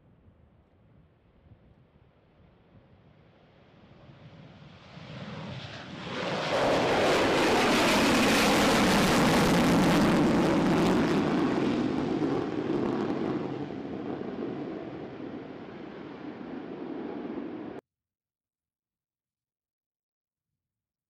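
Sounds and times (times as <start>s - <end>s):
jet engines roaring overhead: 4.0s - 17.8s.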